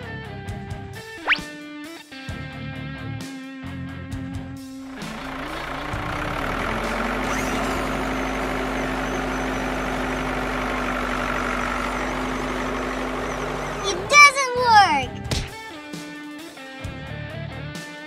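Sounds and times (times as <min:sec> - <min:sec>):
vehicle engine running: 0:04.8 - 0:15.3
guitar music: 0:13.8 - 0:15.9.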